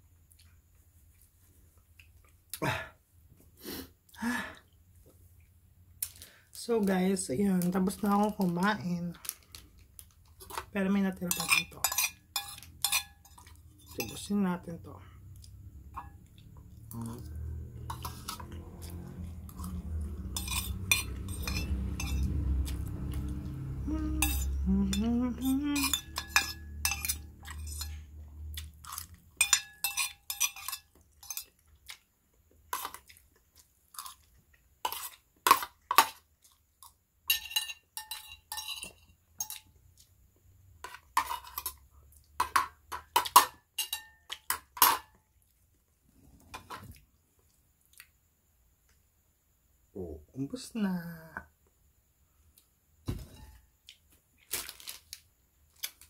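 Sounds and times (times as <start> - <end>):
cutlery clinking on plate: 11.3 - 14.2, 20.3 - 22.3, 25.8 - 28.0, 29.4 - 31.6, 37.3 - 39.7, 42.4 - 45.2.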